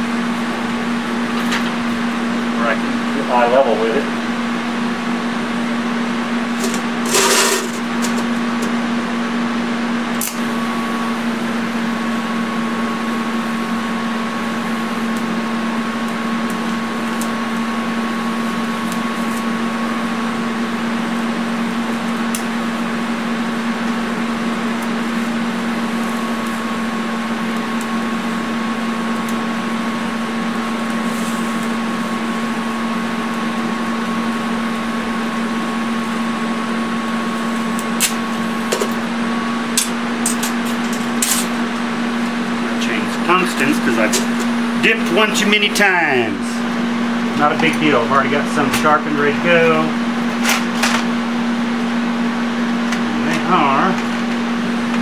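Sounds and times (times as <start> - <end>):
arc crackle: 0.0 - 55.0
welding arc buzzing: 0.0 - 55.0.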